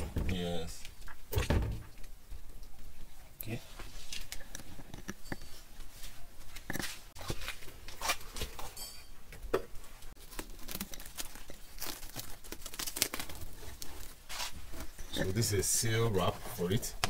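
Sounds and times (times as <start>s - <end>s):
plastic film crinkling: 10.2s - 15.1s.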